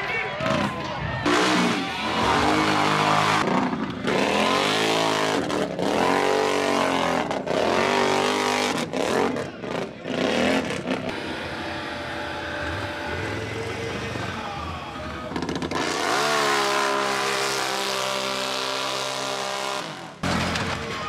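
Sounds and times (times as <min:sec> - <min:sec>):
atv engines revving: 0:00.3 - 0:21.0.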